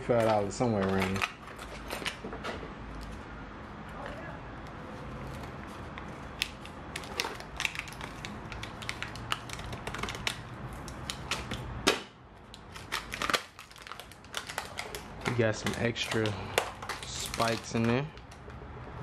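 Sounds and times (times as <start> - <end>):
plastic crinkling: 5.1 - 11.6, 12.4 - 18.4
scissors snipping plastic: 12.8 - 18.4.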